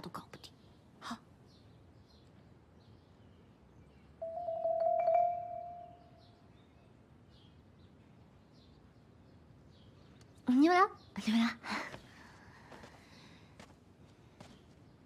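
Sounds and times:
faint bird chirps: 0.1s - 11.8s.

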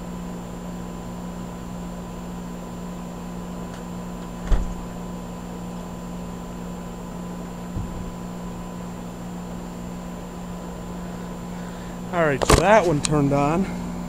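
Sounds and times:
heat pump electrical hum: 0.0s - 14.0s
dull thump: 4.4s - 5.0s, 7.7s - 8.3s.

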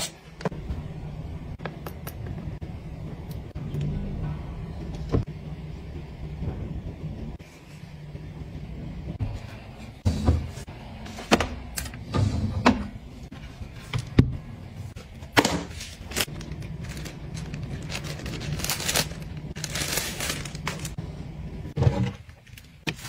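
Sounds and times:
steady low hum: 0.1s - 22.8s
plastic bag crinkling: 16.0s - 21.0s.

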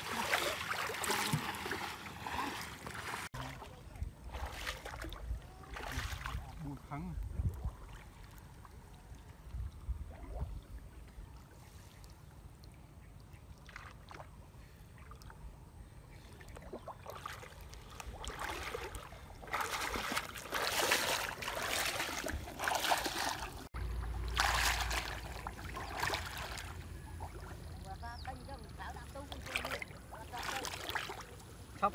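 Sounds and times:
water splashing and dripping: 0.0s - 6.6s, 16.4s - 31.9s.

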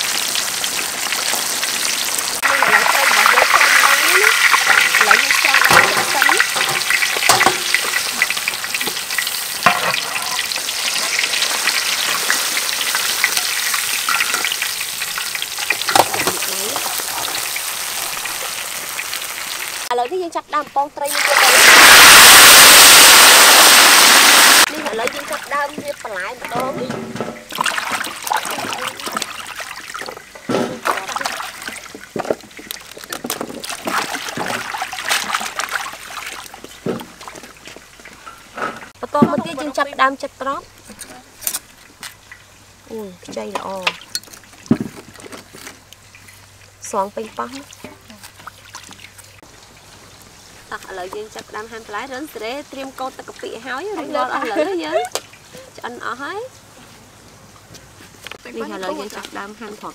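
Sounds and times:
water running off: 0.0s - 20.0s, 21.0s - 56.4s
fish sizzling in hot oil: 0.0s - 20.3s, 20.9s - 26.6s, 49.1s - 56.5s
water splashing and sloshing in basin: 2.4s - 19.7s, 24.6s - 39.8s, 43.3s - 55.7s.

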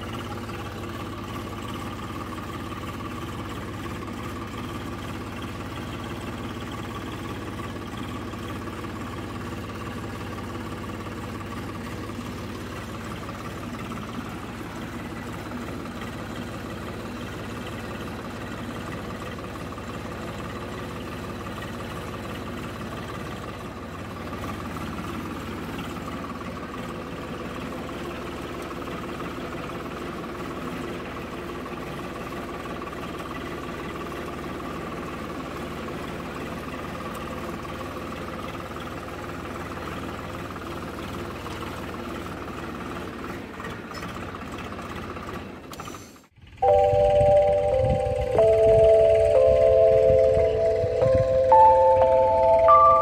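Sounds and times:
tractor diesel engine running: 0.0s - 53.0s
loud melodic music: 46.6s - 53.0s.

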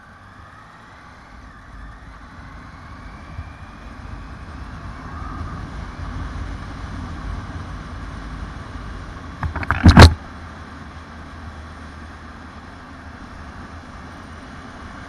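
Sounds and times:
motorcycle engine running: 9.4s - 10.2s.

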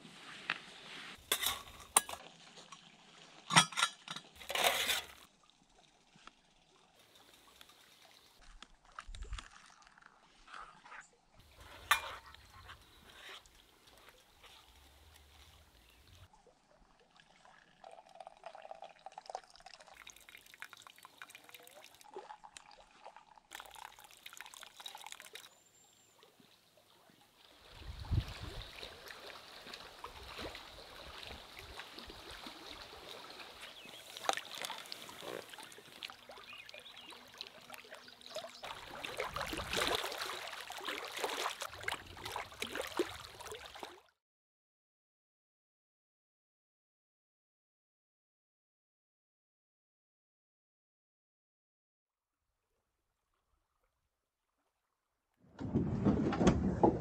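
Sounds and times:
spoon scraping metal pot: 1.2s - 2.2s, 3.5s - 5.2s
liquid pouring into metal mug: 17.1s - 25.5s.

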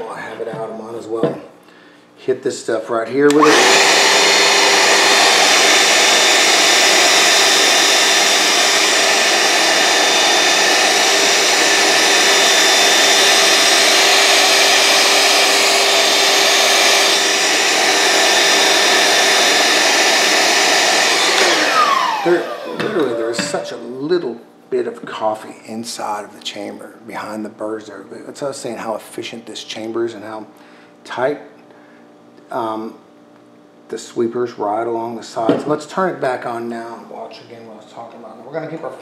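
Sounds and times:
vacuum motor winding down: 3.2s - 24.2s
handheld vacuum running: 3.3s - 24.1s.

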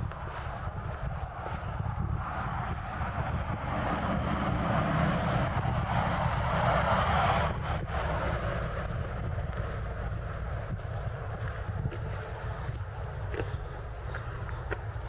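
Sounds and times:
rushing noise: 0.0s - 13.2s
wind buffeting microphone: 0.0s - 15.0s.

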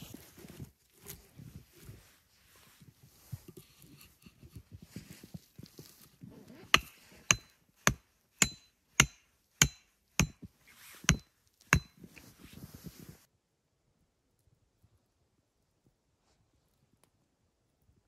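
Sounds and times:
quiet rustling and handling: 0.0s - 8.3s, 10.4s - 13.3s
tool chopping firewood: 6.6s - 12.1s.

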